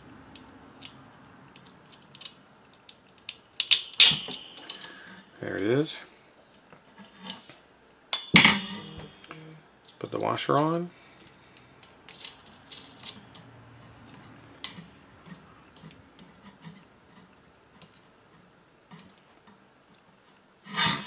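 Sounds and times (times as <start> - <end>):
small metal hardware clicking: 0.8 - 5.0.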